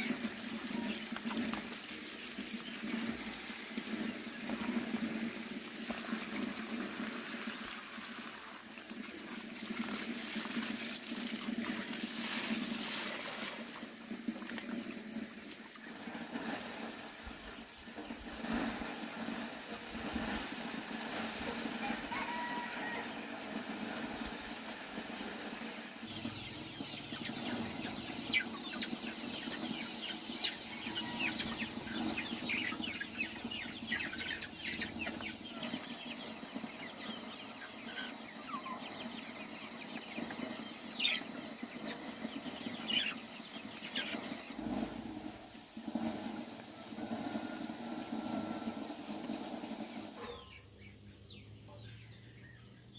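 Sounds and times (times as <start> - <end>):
chicks peeping: 25.0 - 52.6.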